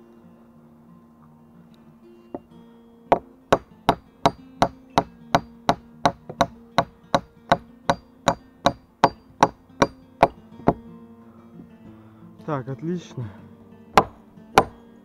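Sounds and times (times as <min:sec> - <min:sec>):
hatchet hammering nail into wood: 0:03.1 - 0:10.8, 0:14.0 - 0:14.8.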